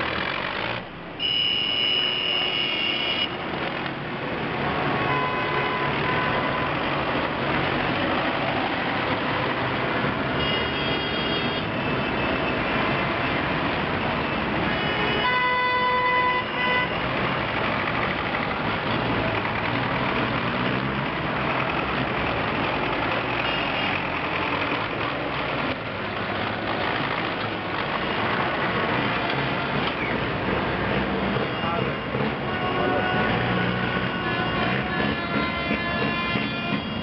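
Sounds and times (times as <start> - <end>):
tractor diesel engines running: 0.0 - 37.0
vehicle horn: 1.2 - 3.4, 4.9 - 6.7, 10.4 - 11.7, 14.7 - 17.0, 31.4 - 37.0.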